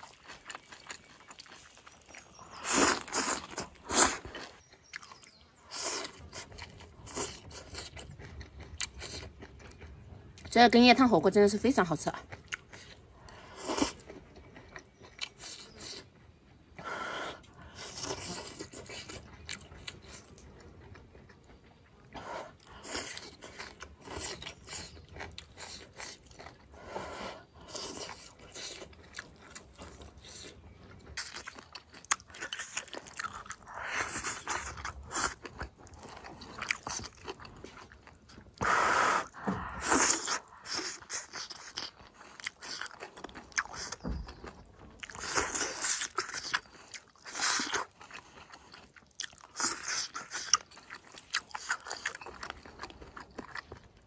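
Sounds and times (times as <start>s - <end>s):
person chewing food: 0.0s - 10.5s, 12.1s - 54.0s
person slurping broth: 38.6s - 41.4s.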